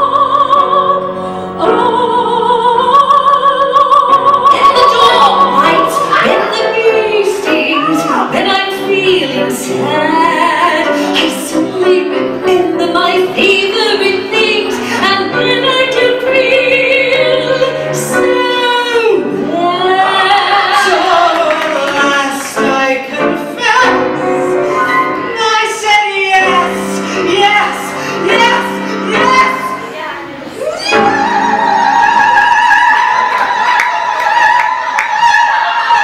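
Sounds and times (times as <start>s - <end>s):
musical accompaniment: 0.0s - 36.0s
woman singing with vibrato: 0.0s - 36.0s.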